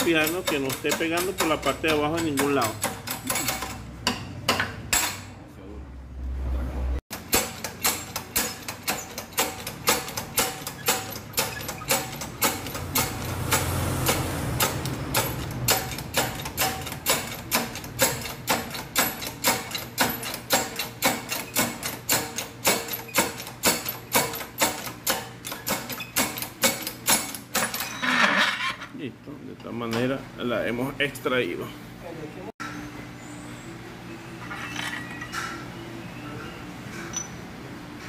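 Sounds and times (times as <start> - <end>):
hydraulic press clicking: 7.2 - 27.8.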